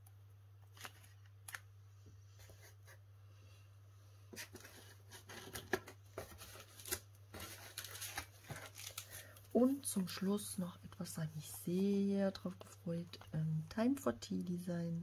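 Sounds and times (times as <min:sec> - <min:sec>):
plastic wrapping rustling and clicking: 0:04.4 - 0:09.4
steady low hum: 0:09.0 - 0:15.0.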